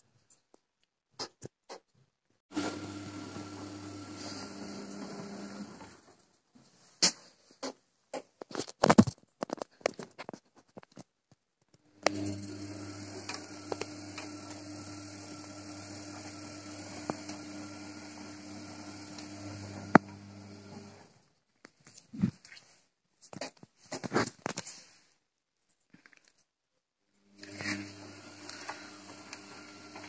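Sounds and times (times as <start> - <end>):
washing machine humming: 2.5 - 6.2, 12.0 - 21.2, 27.4 - 30.0.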